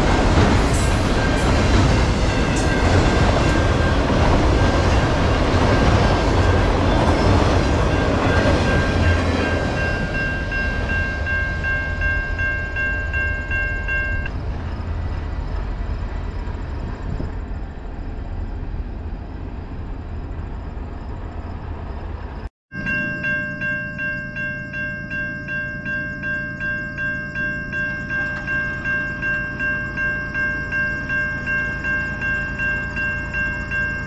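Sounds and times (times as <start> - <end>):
railway crossing bell ringing: 0.0 - 14.4, 22.7 - 34.0
freight train wheels rumbling on rail: 0.0 - 22.5, 23.9 - 34.0.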